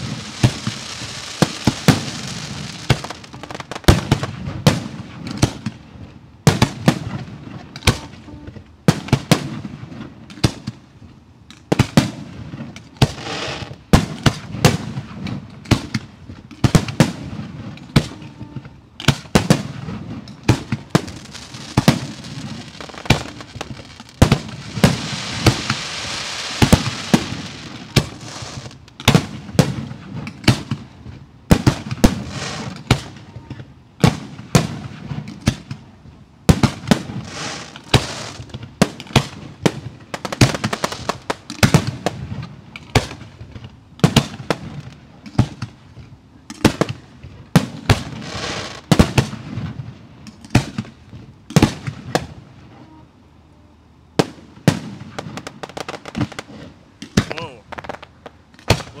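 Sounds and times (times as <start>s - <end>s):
rapid firework crackling: 0.0s - 8.2s, 11.7s - 18.3s, 19.0s - 33.3s, 34.0s - 52.5s, 54.2s - 59.0s
firework shell bursts: 19.0s - 30.8s, 31.5s - 33.2s, 36.5s - 42.2s.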